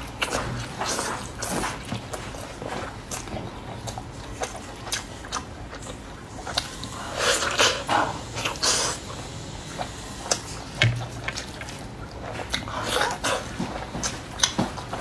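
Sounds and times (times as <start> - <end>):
biting and chewing meat: 0.0 - 15.0.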